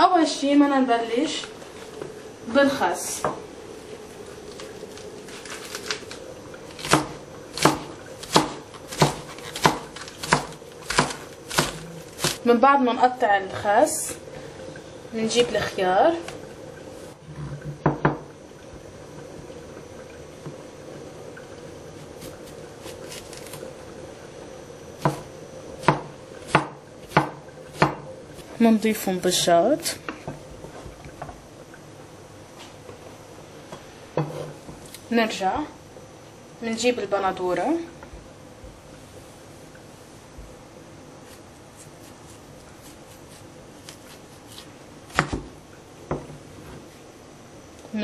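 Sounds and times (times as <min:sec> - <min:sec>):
knife chopping lettuce on plastic board: 0:06.8 - 0:12.4, 0:41.3 - 0:45.5.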